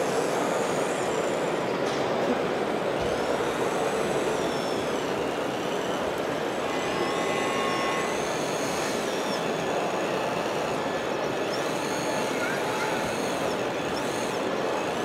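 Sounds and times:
model excavator motors whining: 0:00.0 - 0:15.0
steady background noise: 0:00.0 - 0:15.0.

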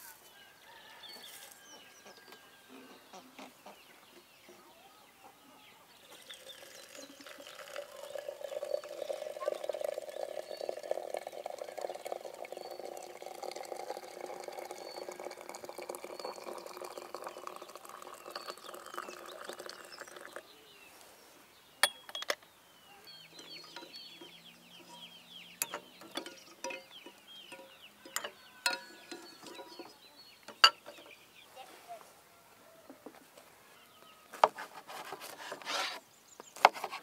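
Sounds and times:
chickens clucking: 0:02.0 - 0:06.3.

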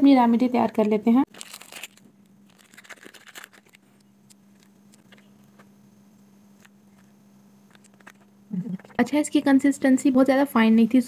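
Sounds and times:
steady low hum: 0:00.0 - 0:11.0
foil packet rustling: 0:01.3 - 0:05.7, 0:07.7 - 0:09.0.

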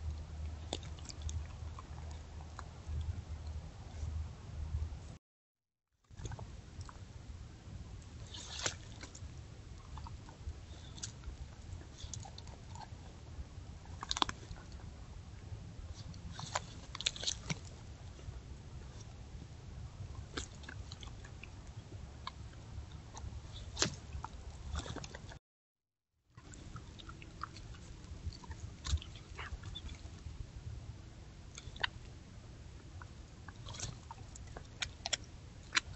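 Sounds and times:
steady low hum: 0:00.0 - 0:05.2, 0:06.2 - 0:25.4, 0:26.4 - 0:35.9.

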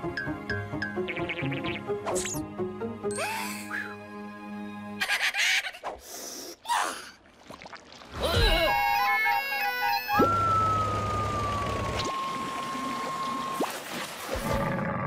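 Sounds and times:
low buzz: 0:10.2 - 0:13.6.

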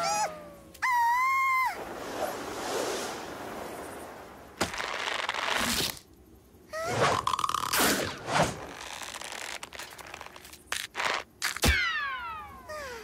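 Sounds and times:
long whooshing hiss: 0:01.7 - 0:06.6.

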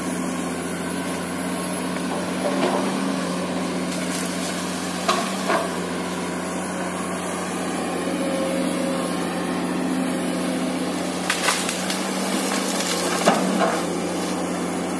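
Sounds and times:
excavator diesel engine running: 0:00.0 - 0:14.9
wood snapping: 0:11.2 - 0:13.8.

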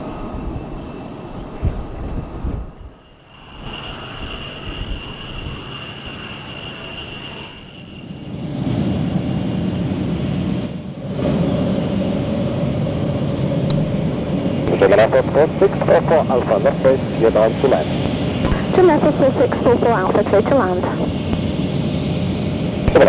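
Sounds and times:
jet engine whine: 0:00.0 - 0:23.0
low jet rumble: 0:00.0 - 0:23.0.

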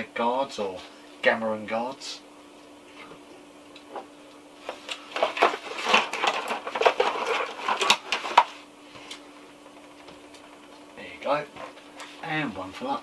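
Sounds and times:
plastic figures clattering: 0:05.1 - 0:08.6.

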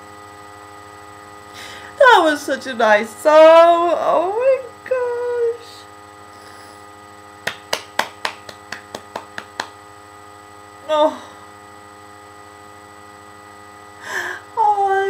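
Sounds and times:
electrical mains hum: 0:00.0 - 0:15.0
woman murmuring: 0:10.9 - 0:11.4.

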